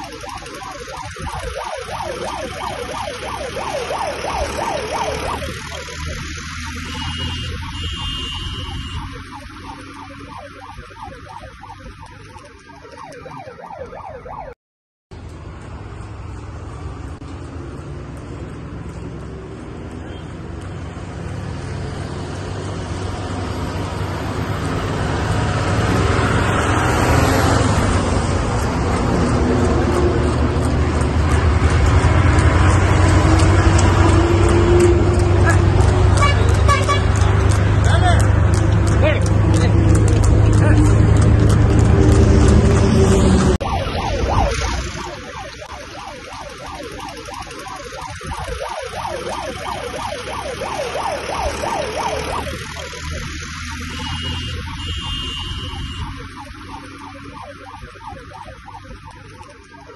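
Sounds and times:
siren yelping: 0:00.0 - 0:14.6, 0:42.2 - 0:59.9
engines and traffic rumble: 0:00.0 - 0:59.9.

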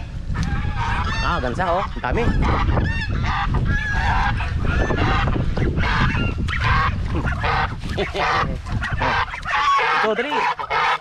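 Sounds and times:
geese honking: 0:00.3 - 0:11.0.

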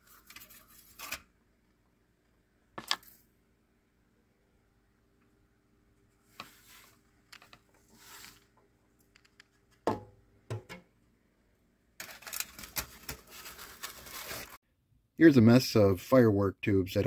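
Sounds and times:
powder rustling and scraping: 0:06.3 - 0:07.1, 0:07.8 - 0:08.5, 0:12.0 - 0:14.6.

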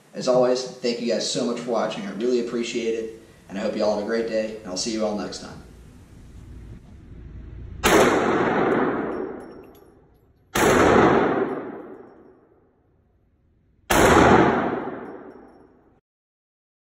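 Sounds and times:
pistol shots echoing indoors: 0:07.8 - 0:12.6, 0:13.8 - 0:16.0.

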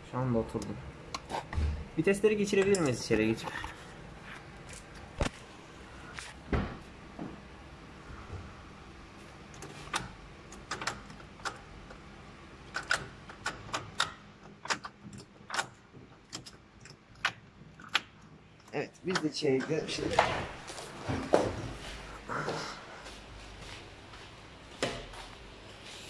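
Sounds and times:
gearbox linkage clicks and clunks: 0:12.7 - 0:18.1.

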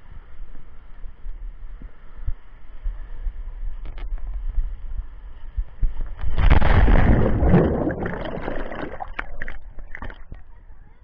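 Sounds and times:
rushing water in slide tube: 0:05.7 - 0:10.4
loud splashing water: 0:06.4 - 0:10.2
muffled underwater bubbling: 0:06.4 - 0:10.4.

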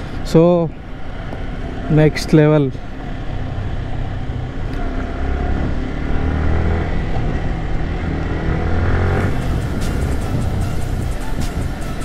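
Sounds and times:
motorcycle engine running: 0:03.0 - 0:12.0.

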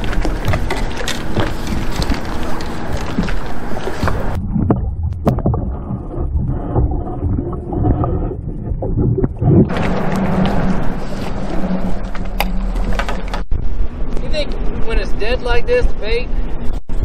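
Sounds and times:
sharp knocks underwater: 0:00.0 - 0:11.0
muffled underwater rumble: 0:00.0 - 0:14.9
crackling noise: 0:00.0 - 0:15.5
wind buffeting microphone: 0:00.0 - 0:17.0.

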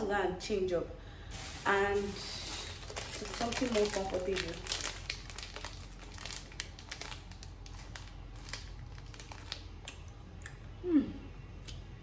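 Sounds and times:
plastic packaging crinkling: 0:01.3 - 0:10.2.

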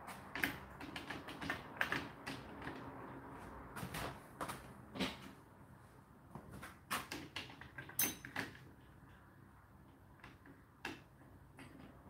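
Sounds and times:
metal spoons clinking: 0:08.0 - 0:08.3.

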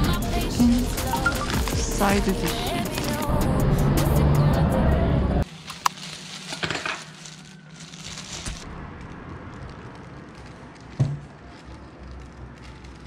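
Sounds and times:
plastic bags crinkling: 0:00.6 - 0:03.3, 0:05.4 - 0:13.0.

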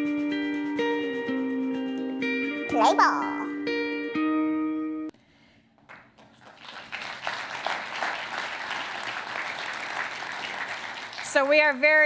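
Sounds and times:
audience applauding: 0:05.9 - 0:11.8.

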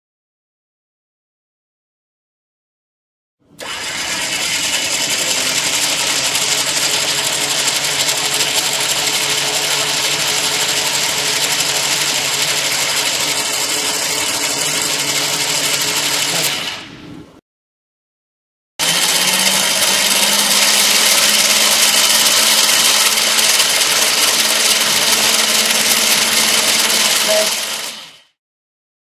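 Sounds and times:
electric winch whining: 0:03.5 - 0:16.9, 0:18.8 - 0:28.4.

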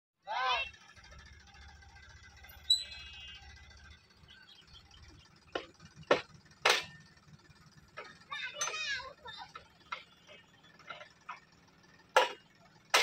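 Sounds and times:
tractor engine humming: 0:00.3 - 0:13.0
sharp knocks: 0:05.5 - 0:07.0, 0:12.1 - 0:13.0.

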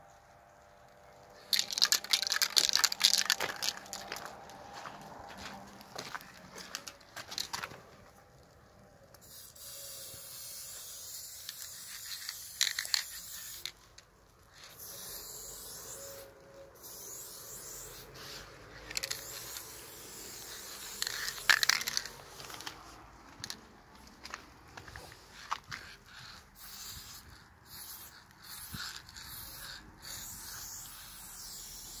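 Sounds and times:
spray paint can hissing: 0:01.4 - 0:04.4, 0:09.1 - 0:23.6, 0:25.0 - 0:32.0.

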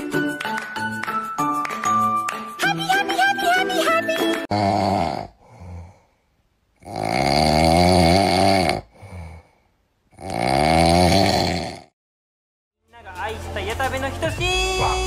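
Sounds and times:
person snoring: 0:04.5 - 0:06.2, 0:06.8 - 0:12.0
faint breath: 0:05.4 - 0:06.4, 0:08.9 - 0:09.8.

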